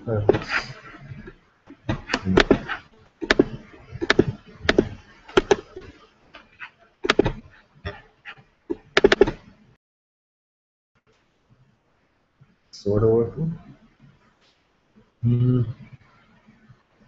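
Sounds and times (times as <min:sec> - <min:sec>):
keyboard and mouse clicks: 0:01.8 - 0:08.0, 0:08.7 - 0:09.5.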